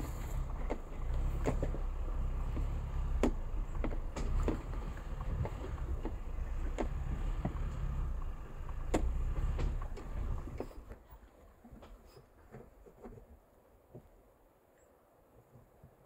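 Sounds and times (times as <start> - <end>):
tyres and suspension knocking on rocks: 0.0 - 11.0
truck engine low rumble: 0.0 - 11.3.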